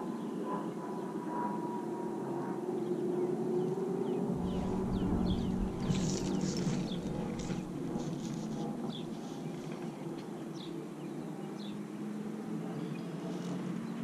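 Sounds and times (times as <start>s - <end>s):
small birds chirping: 2.8s - 11.9s
steady low hum: 2.8s - 14.0s
brief rustle: 5.6s - 9.9s.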